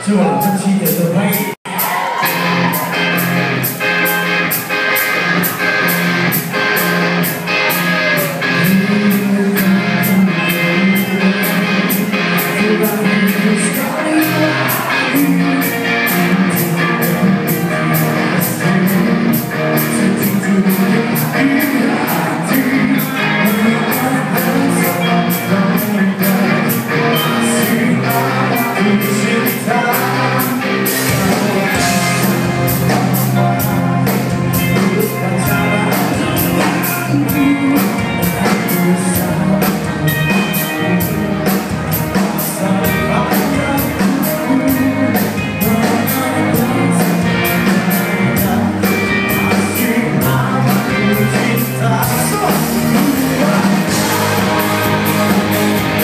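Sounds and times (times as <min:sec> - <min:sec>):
man singing: 0:00.0 - 0:02.9, 0:07.7 - 0:56.0
electric guitars: 0:00.0 - 0:56.0
drum kit with cymbals: 0:30.0 - 0:56.0.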